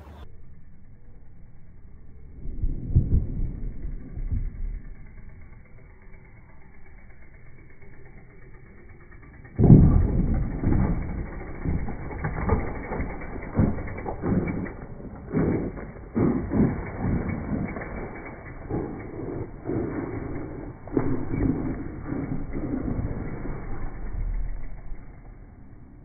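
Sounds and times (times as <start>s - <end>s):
bike freewheel ticking: 0.0s - 26.0s
bike rattling over dirt: 2.2s - 25.8s
bike landing thud: 9.5s - 15.5s.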